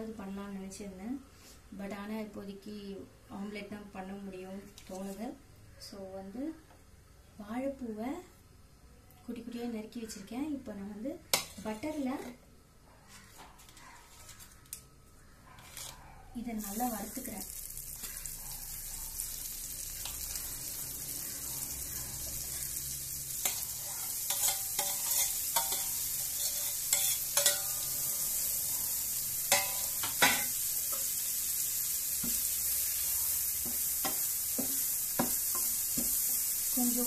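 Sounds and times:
spoon scraping a steel plate: 0:15.6 - 0:16.0, 0:23.4 - 0:28.3
butter sizzling in a frying pan: 0:16.6 - 0:37.0.

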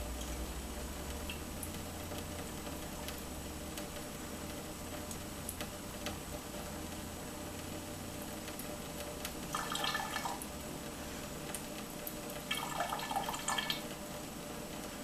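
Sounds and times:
water splashing: 0:09.5 - 0:10.5, 0:12.5 - 0:13.8
water trickling into metal sink: 0:09.5 - 0:10.5, 0:12.3 - 0:13.9.

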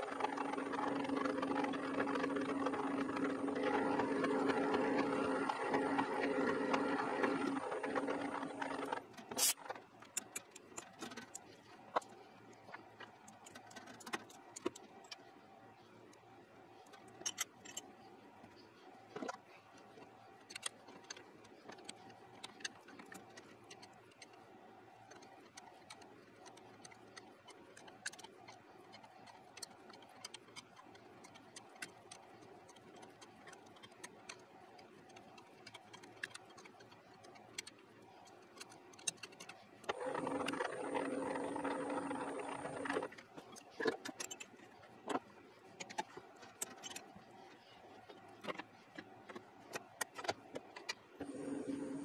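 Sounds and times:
loud machine hum with held tones: 0:00.0 - 0:09.0, 0:39.9 - 0:43.1, 0:51.2 - 0:52.0
faint steady hum: 0:00.0 - 0:52.0
metallic clicks and taps of tools: 0:09.2 - 0:12.1.

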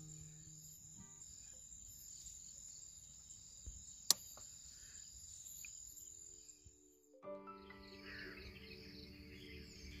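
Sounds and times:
crickets trilling: 0:00.0 - 0:06.8
background music: 0:06.9 - 0:10.0.

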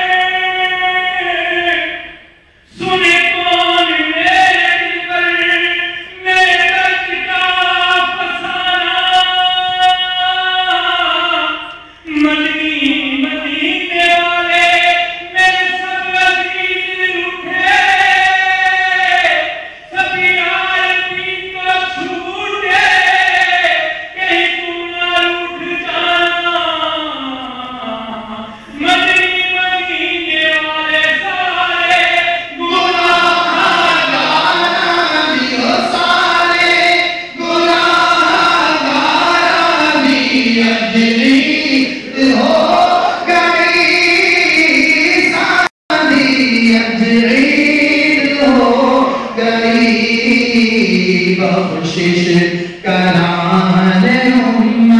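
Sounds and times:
men chanting together: 0:31.2 - 0:54.9.

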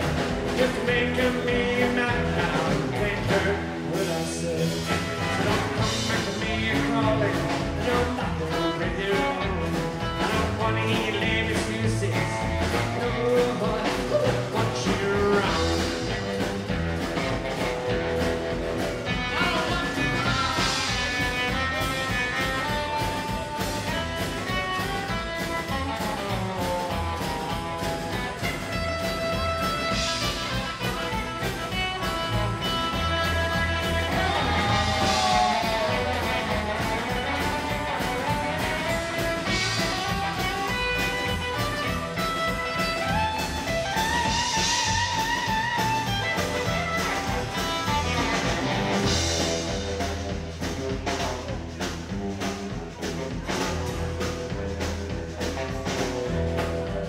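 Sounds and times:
rockabilly band playing: 0:00.0 - 0:57.0.

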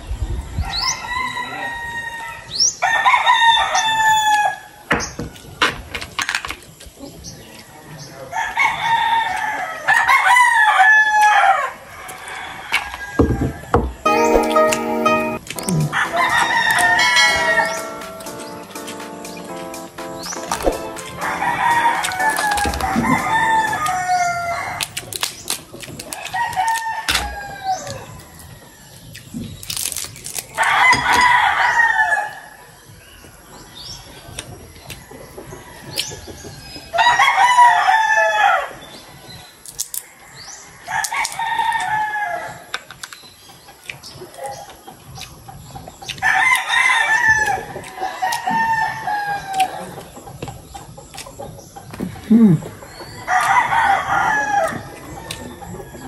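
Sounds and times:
rooster crowing: 0:01.0 - 0:04.6, 0:16.0 - 0:17.8, 0:21.2 - 0:24.9, 0:53.3 - 0:56.0.

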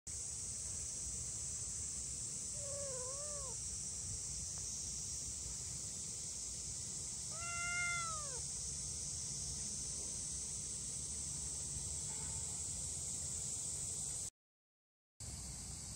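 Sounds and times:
kitten meowing: 0:02.6 - 0:03.6, 0:07.3 - 0:08.4.

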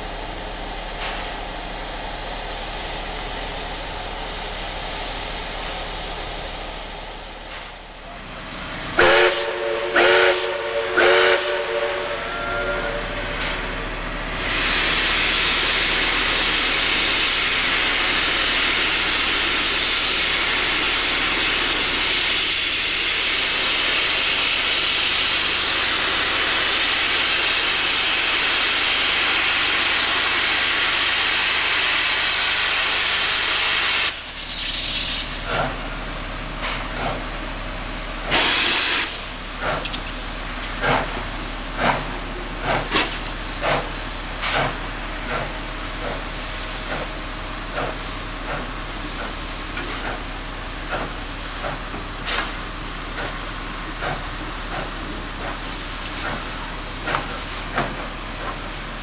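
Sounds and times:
steam locomotive exhaust beats: 0:00.0 - 0:59.0
steam locomotive venting steam: 0:00.0 - 0:59.0
steam whistle blast: 0:09.0 - 0:13.5.

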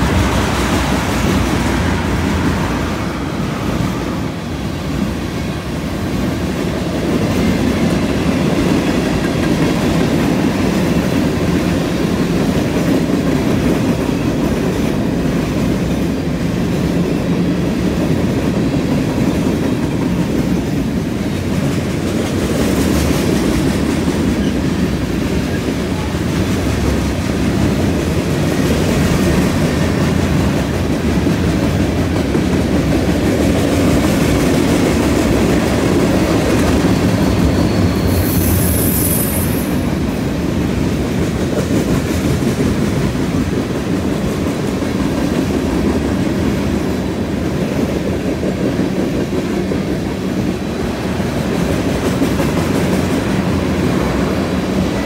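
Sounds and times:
train wheels rumbling on rails: 0:00.0 - 0:55.0
high-pitched wheel squeal: 0:37.0 - 0:39.9.

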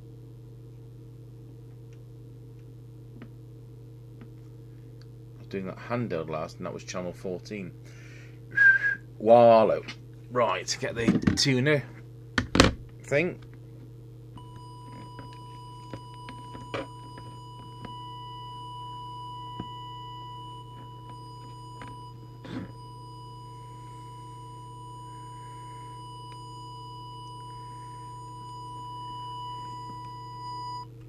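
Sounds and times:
low hum: 0:11.8 - 0:31.0
steady test tone: 0:14.4 - 0:30.9.

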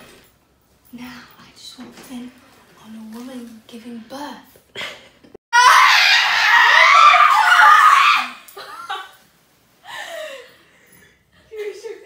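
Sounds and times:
woman screaming: 0:05.5 - 0:08.6.

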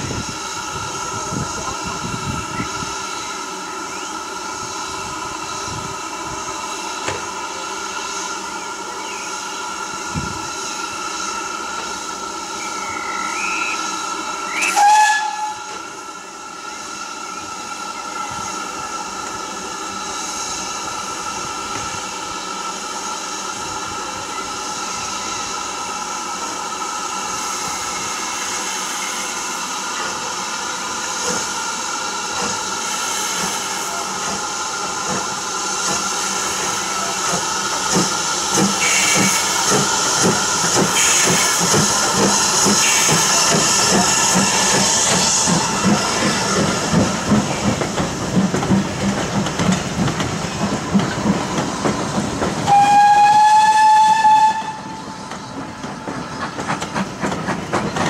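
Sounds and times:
locomotive chuffing: 0:00.0 - 0:58.0
steam hissing: 0:00.0 - 0:58.0
steam locomotive whistle: 0:11.4 - 0:19.0, 0:38.6 - 0:39.8, 0:40.9 - 0:41.7, 0:52.6 - 0:55.2.

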